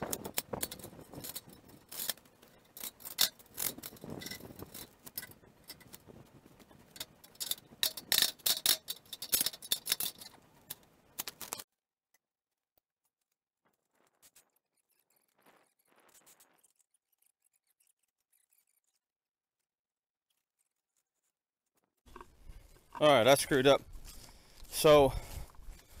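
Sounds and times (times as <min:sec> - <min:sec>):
metal clinks and scrapes: 0:00.0 - 0:11.6.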